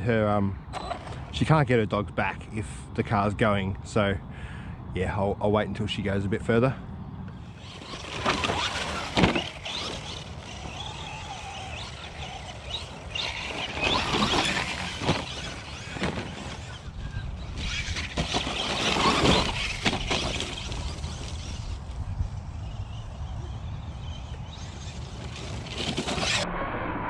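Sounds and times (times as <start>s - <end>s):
rc car motor whining: 7.3s - 26.4s
tyres scrabbling on dirt: 7.4s - 26.4s.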